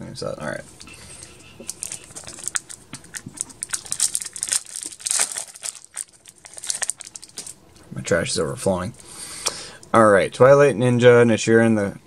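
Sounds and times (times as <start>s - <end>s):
foil wrapper tearing and crinkling: 1.2s - 7.6s.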